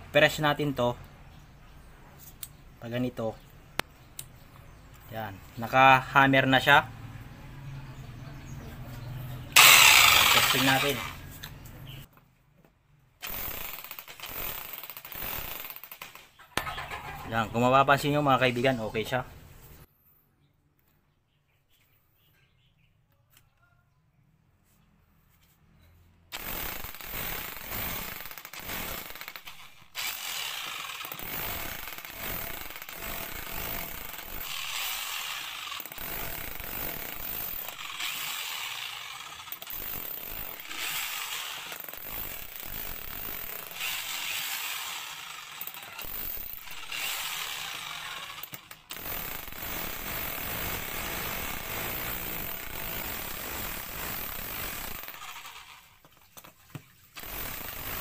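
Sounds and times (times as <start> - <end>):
jackhammer breaking concrete: 9.6 - 11.2, 13.2 - 17.4, 26.3 - 56.2, 57.2 - 58.0.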